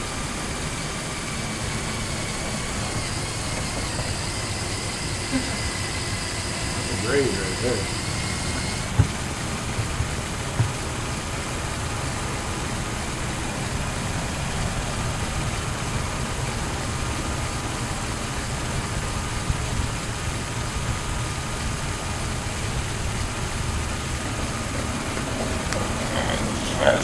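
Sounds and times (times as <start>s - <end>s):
toy car motors whirring: 1.7s - 10.7s
light knocks: 8.5s - 10.9s.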